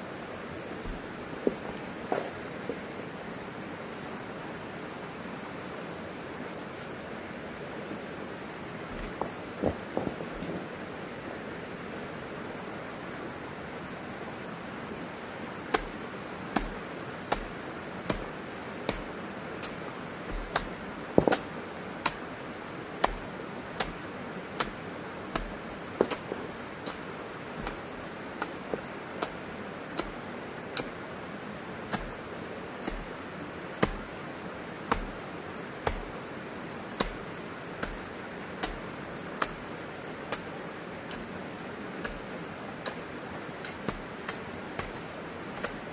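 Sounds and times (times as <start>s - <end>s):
insects chorus: 0.0s - 45.9s
steady knocks with dull thud: 0.8s - 2.8s, 9.0s - 10.6s, 20.3s - 21.4s.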